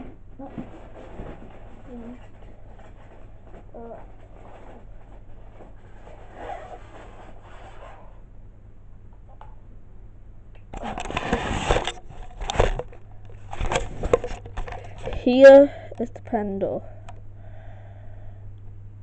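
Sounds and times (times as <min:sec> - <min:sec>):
rustling and scraping: 0:00.0 - 0:08.2, 0:10.8 - 0:15.7
low steady hum: 0:00.0 - 0:19.0.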